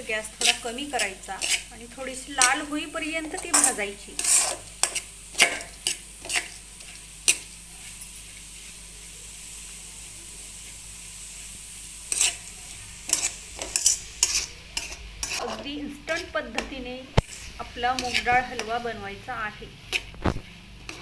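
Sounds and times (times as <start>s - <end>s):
soft sizzling hiss: 0.0s - 21.0s
metal spatula scraping a pan: 0.3s - 1.7s, 2.4s - 8.0s, 12.1s - 19.0s, 19.9s - 21.0s.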